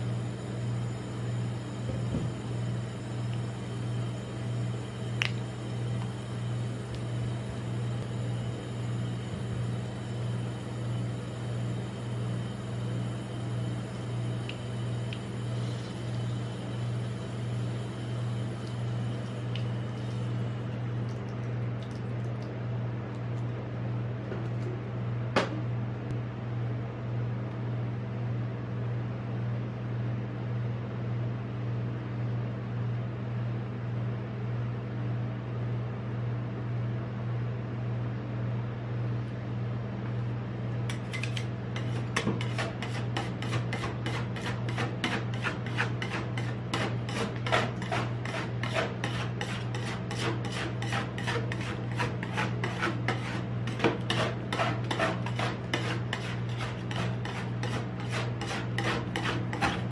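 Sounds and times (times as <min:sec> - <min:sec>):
refrigeration hum: 0:00.0 - 0:59.9
spatulas scraping on metal pan: 0:40.9 - 0:59.9.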